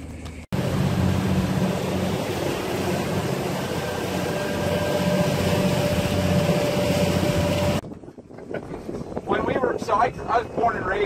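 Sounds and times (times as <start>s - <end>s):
outboard motor running: 0.5s - 7.8s.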